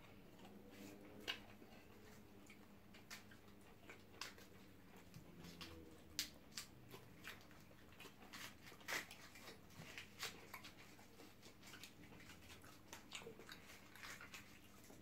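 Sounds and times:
chewing and mouth sounds: 0.0s - 15.0s
fingers pulling crisp chicken: 0.4s - 15.0s.

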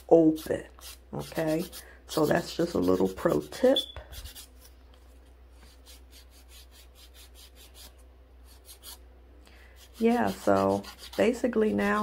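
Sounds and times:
nail file rasping: 0.3s - 4.5s, 5.7s - 9.0s, 9.8s - 11.3s.

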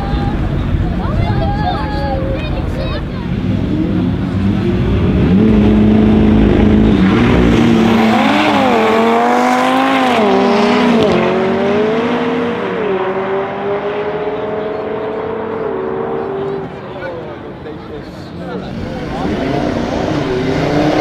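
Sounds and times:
turbocharged car engine accelerating: 3.2s - 21.0s.

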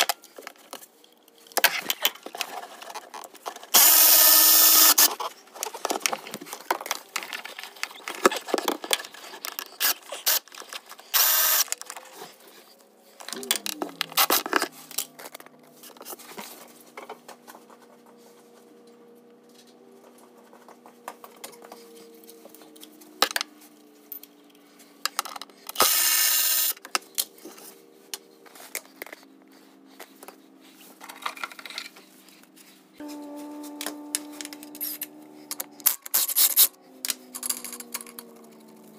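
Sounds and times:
clatter of tools and parts: 0.0s - 17.9s, 19.5s - 29.2s, 30.0s - 32.2s, 33.1s - 38.9s
cordless power tool running: 3.8s - 5.1s, 11.2s - 11.7s.

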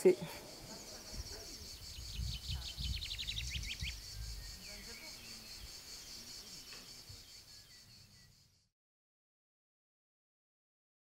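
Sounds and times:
bird singing: 0.0s - 8.7s
insects chorus: 0.0s - 8.7s.

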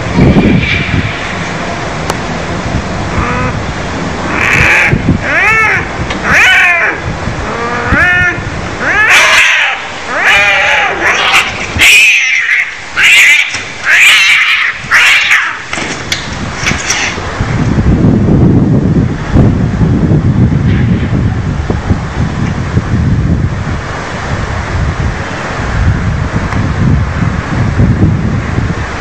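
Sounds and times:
cats yowling in a fight: 4.3s - 15.7s.

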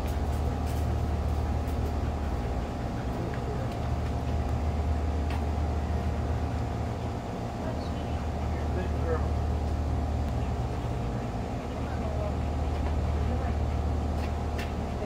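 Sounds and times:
low mechanical hum: 0.0s - 15.0s.

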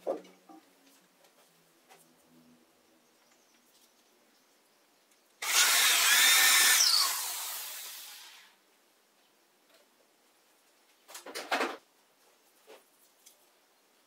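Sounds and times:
electric drill boring into wood: 5.4s - 8.6s.

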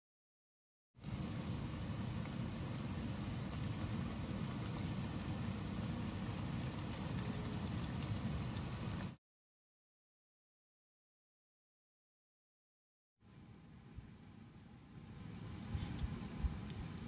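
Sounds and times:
food deep-frying in hot oil: 1.0s - 9.2s, 13.3s - 17.0s.

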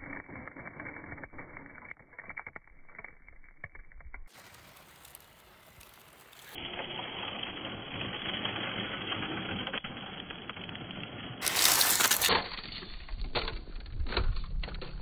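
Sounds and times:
tyres crunching on gravel: 4.3s - 10.6s, 11.4s - 12.4s.

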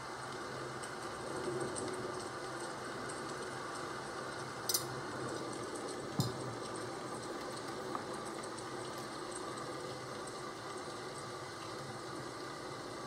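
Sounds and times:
rain hiss: 0.0s - 13.0s.

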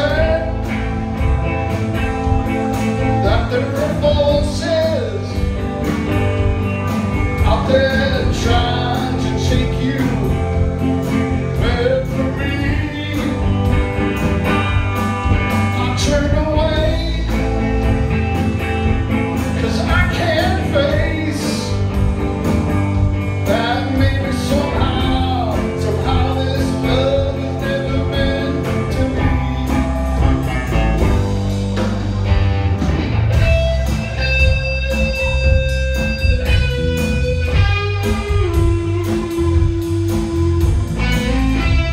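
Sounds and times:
male lead vocal: 0.0s - 0.9s, 3.1s - 5.6s, 7.4s - 13.9s, 15.5s - 17.9s, 19.4s - 21.9s, 23.4s - 30.4s
electric guitar: 0.0s - 41.9s
rock band playing: 0.0s - 41.9s.

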